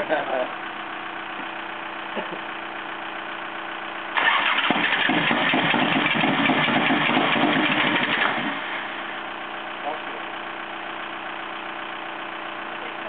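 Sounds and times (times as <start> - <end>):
steady engine hum: 0.0 - 13.0
loud rough motorcycle engine: 4.1 - 10.5.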